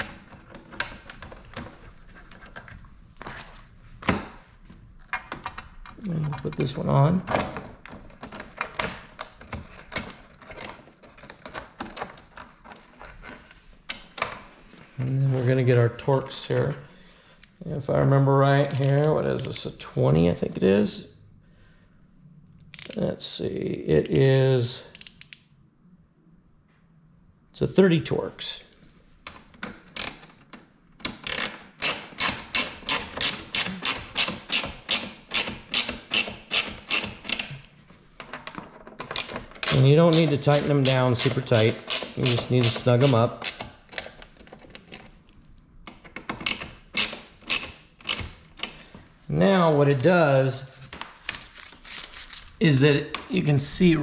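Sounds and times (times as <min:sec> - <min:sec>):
hand screwdriver clicking: 0:18.6 - 0:19.2, 0:22.7 - 0:23.0, 0:24.0 - 0:25.4, 0:31.0 - 0:37.6, 0:46.0 - 0:48.8.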